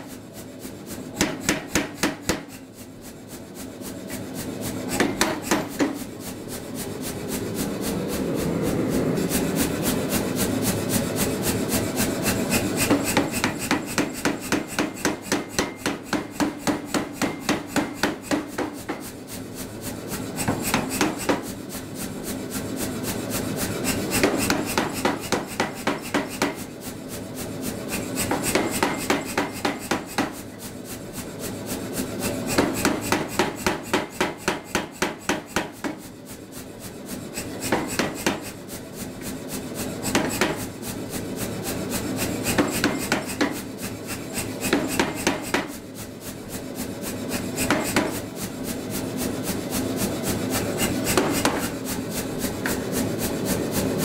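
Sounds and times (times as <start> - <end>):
power hammer striking hot steel: 1.0 - 2.6, 4.1 - 6.2, 11.2 - 19.4, 20.0 - 21.6, 23.6 - 26.7, 27.7 - 30.5, 32.0 - 36.3, 37.3 - 38.6, 39.9 - 45.8, 46.4 - 48.3, 50.3 - 52.8.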